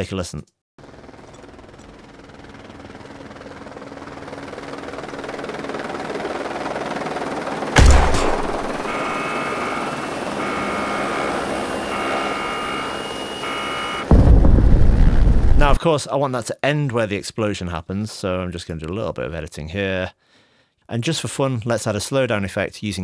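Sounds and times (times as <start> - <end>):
helicopter rotor drone: 0.8 - 15.8
loud bang: 7.8 - 9.2, 14.1 - 15.8.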